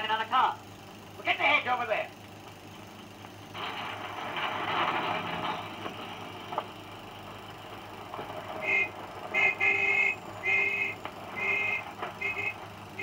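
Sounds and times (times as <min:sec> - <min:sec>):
film soundtrack hiss: 0:00.0 - 0:13.0
car horn tooting: 0:08.6 - 0:13.0.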